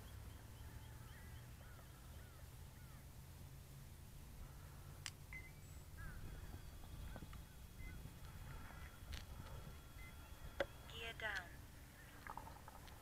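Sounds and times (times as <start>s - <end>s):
low wind rumble on microphone: 0.0s - 13.0s
faint chirps: 4.4s - 11.0s.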